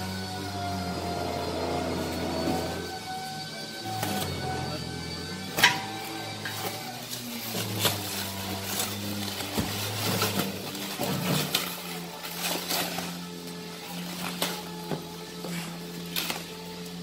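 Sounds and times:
plastic packaging crinkling and tearing: 5.4 - 17.0.

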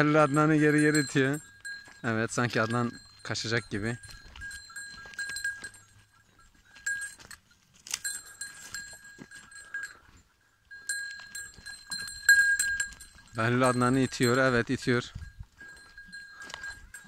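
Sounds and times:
bell ringing: 0.0 - 7.4, 10.7 - 17.0.

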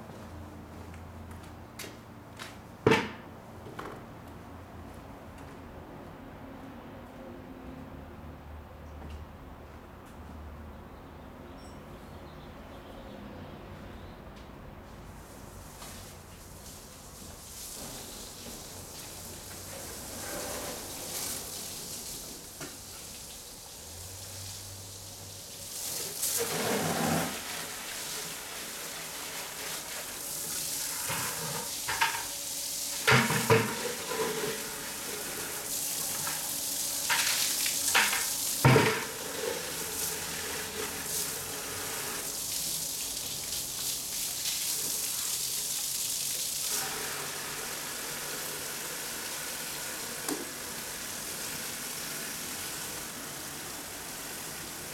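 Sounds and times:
hose water splashing into bucket: 15.8 - 54.9.

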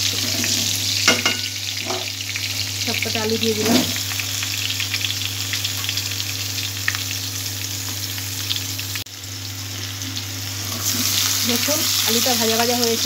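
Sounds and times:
potatoes sizzling in hot oil: 0.0 - 13.0.

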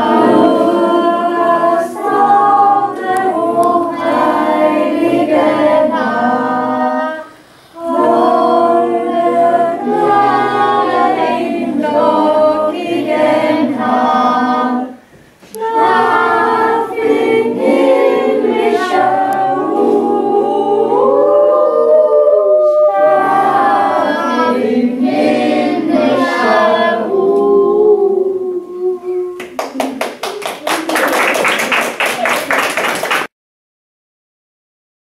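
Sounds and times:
children singing: 0.0 - 29.4
applause: 29.4 - 33.3.

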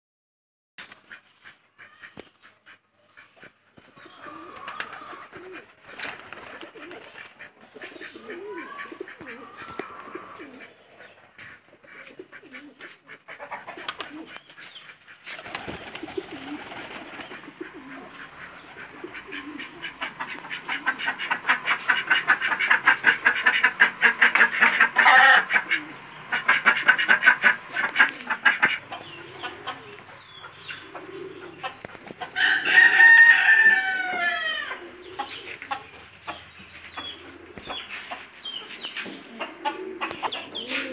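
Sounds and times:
chickens calling: 0.8 - 40.9
pigeons cooing: 1.8 - 40.9
rooster crowing: 32.4 - 34.8.

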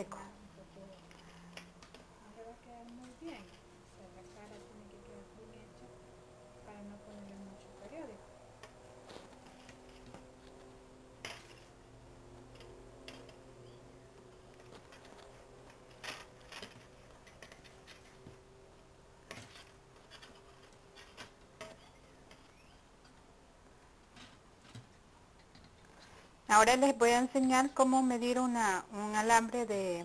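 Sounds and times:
faint steady hum: 0.0 - 30.0
wires clicking and scratching: 7.1 - 11.8, 12.4 - 18.4, 19.2 - 23.3, 24.0 - 26.4.

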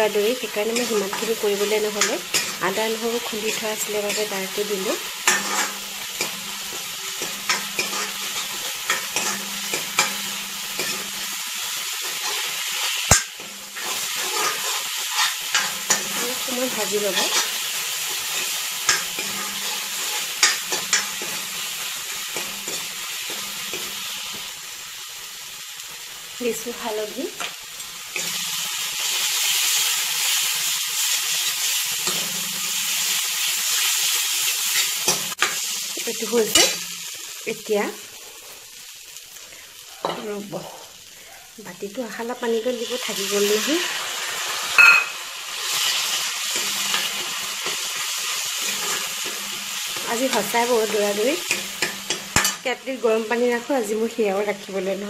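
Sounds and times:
paste sizzling in hot oil: 0.0 - 55.0
spoon stirring and scraping pan: 0.3 - 24.5, 27.4 - 37.1, 39.8 - 41.0, 42.9 - 52.7
spoon clicking on pan: 44.8 - 45.2.

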